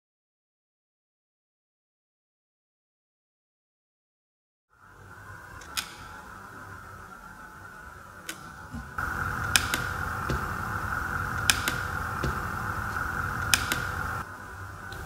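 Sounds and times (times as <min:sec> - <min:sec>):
blower rushing: 0:04.9 - 0:15.0
rocker switch clicking: 0:09.0 - 0:14.2.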